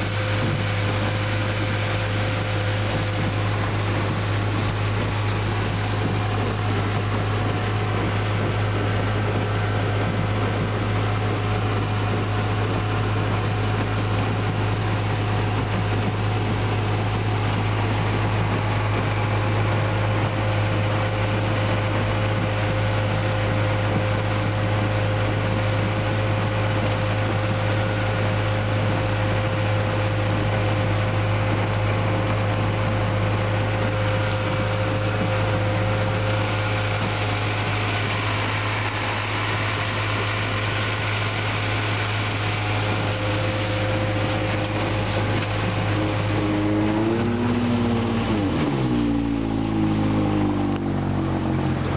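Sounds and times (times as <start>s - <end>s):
outboard motor running: 0.0s - 51.9s
water rushing: 0.0s - 51.9s.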